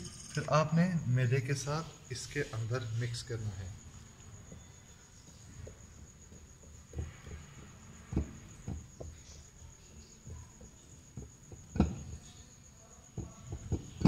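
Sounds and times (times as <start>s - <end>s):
faint high whine: 0.0s - 11.0s.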